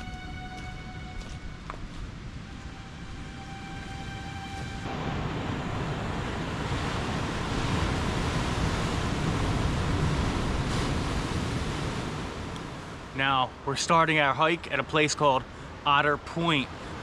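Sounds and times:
wind on microphone: 4.8 - 12.8.

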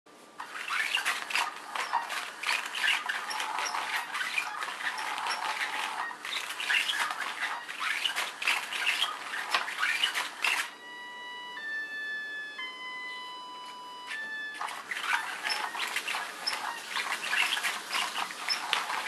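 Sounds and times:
nylon cover rustling and scratching: 0.4 - 10.7, 14.6 - 19.0
held electronic tones: 0.6 - 19.0.

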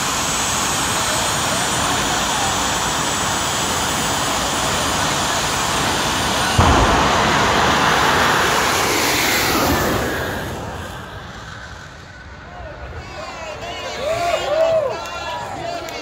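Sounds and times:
jet engine running with high whine: 0.0 - 14.0
afterburner bang and roar: 5.8 - 12.3.

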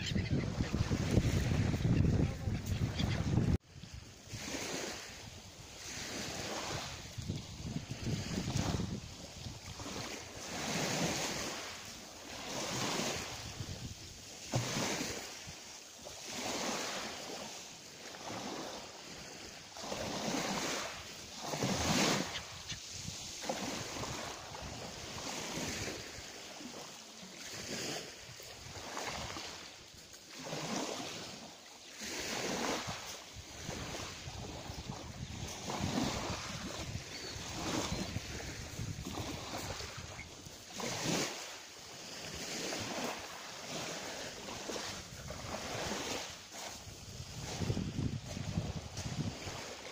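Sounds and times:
small waves washing ashore: 0.0 - 49.9
wind: 0.0 - 49.9.

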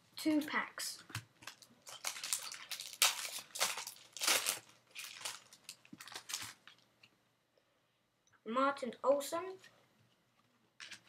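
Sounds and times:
foil card packet tearing and crinkling: 1.4 - 6.7.

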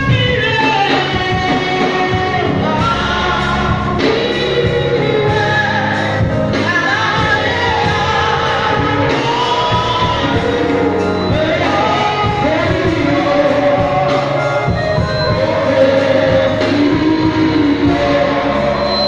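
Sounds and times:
gospel band with drums and bass: 0.0 - 19.0
woman singing lead: 0.0 - 19.0.

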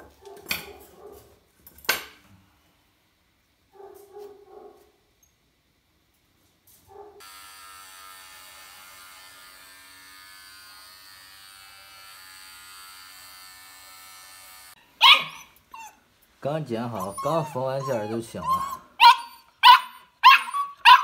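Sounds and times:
electric clippers buzzing: 7.2 - 14.9
puppy yelp: 15.0 - 16.0, 16.8 - 21.0.

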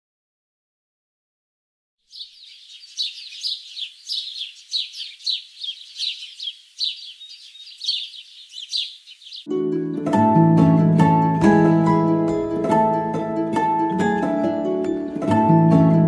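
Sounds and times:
birds chirping: 2.1 - 9.5
plucked-string music: 9.5 - 16.0.

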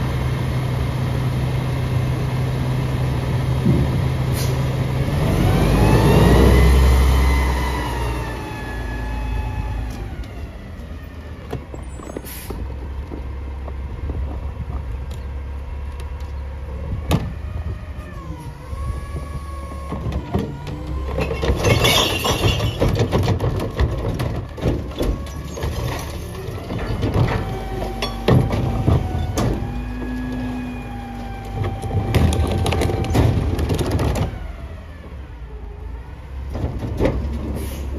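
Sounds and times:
truck engine revving: 0.9 - 10.6
engine knocks: 19.0 - 30.6, 31.3 - 35.2
recyclables clattering into hopper: 20.0 - 29.8.

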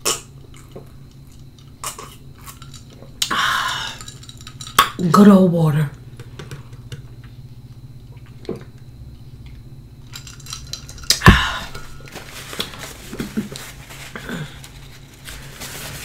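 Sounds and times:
paper napkin rustling: 11.8 - 16.0.

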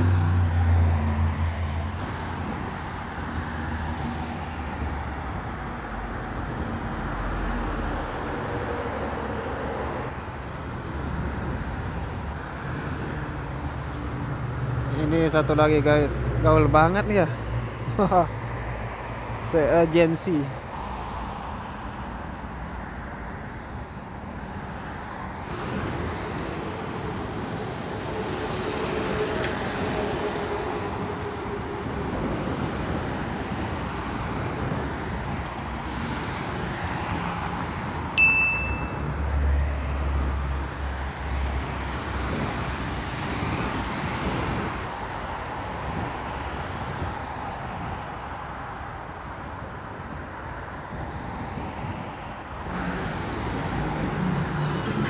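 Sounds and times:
cars passing: 0.0 - 55.0
click and bell-like ding: 38.2 - 39.0.

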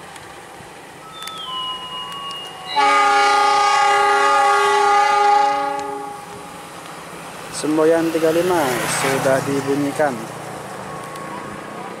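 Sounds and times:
train horn blast: 2.7 - 6.3.

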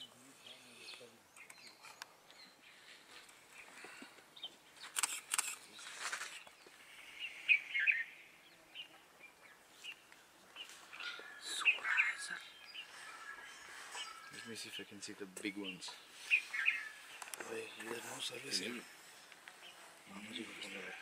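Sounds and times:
birds chirping: 0.0 - 21.0
brief rustles: 4.8 - 6.6.

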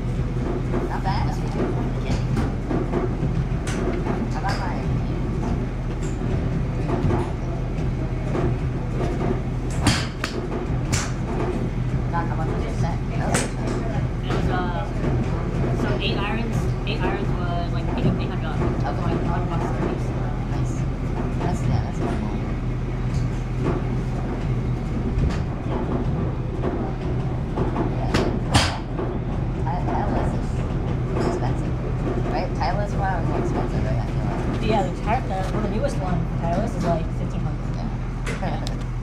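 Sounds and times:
steady low hum: 0.0 - 39.0.

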